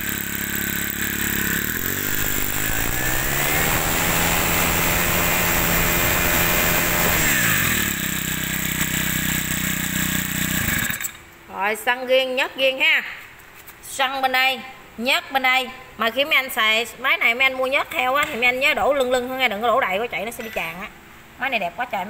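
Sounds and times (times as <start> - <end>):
brushcutter engine revving: 0.0 - 11.2.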